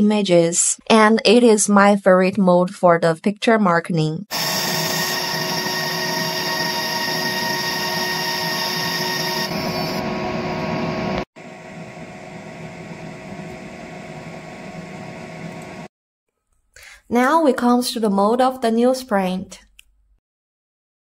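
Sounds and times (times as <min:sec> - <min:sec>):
laser machine buzzing: 0:04.3 - 0:11.0.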